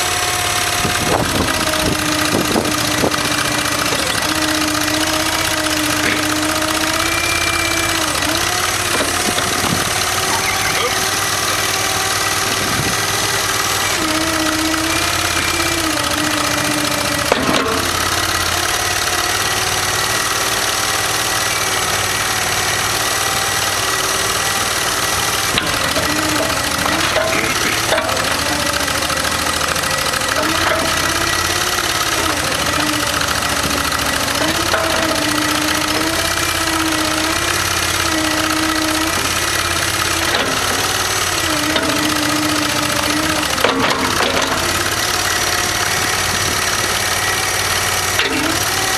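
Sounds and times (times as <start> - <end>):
engine running under load: 0.0 - 48.9
sharp knocks: 14.0 - 18.4.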